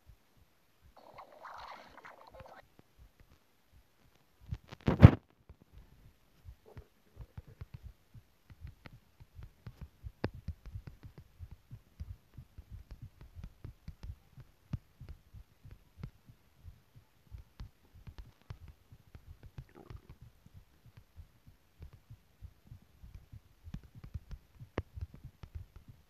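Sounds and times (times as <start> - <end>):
fingertips tapping touchscreen: 1.0 - 2.6.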